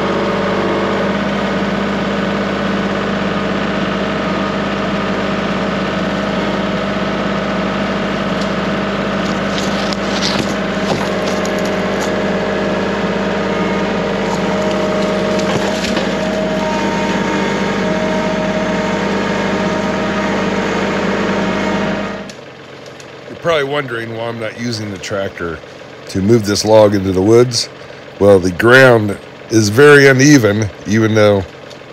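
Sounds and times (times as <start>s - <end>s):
chainsaw cutting tree trunk: 3.8s - 23.2s
wood crackling: 8.2s - 18.3s.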